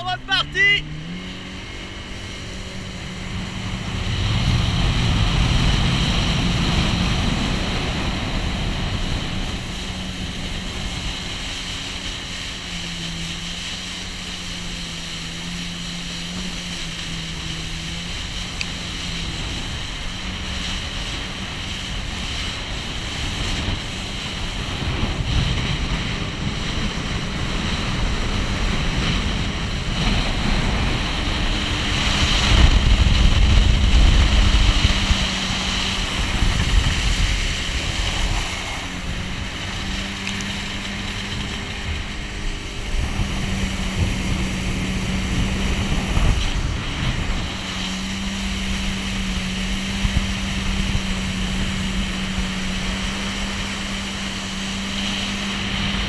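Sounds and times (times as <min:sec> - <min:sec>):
jet ski engine hum: 0:00.0 - 0:56.0
water spray rushing: 0:00.6 - 0:56.0
wind buffeting microphone: 0:00.8 - 0:56.0.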